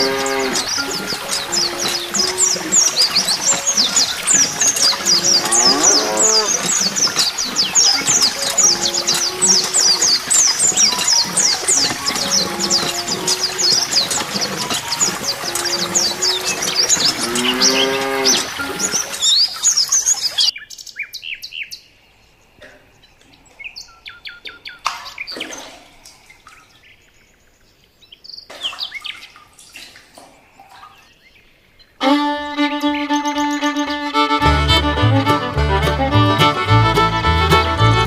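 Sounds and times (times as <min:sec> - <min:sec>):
fiddle tune: 0:00.0 - 0:18.9, 0:32.0 - 0:38.0
small birds chirping: 0:00.0 - 0:34.1.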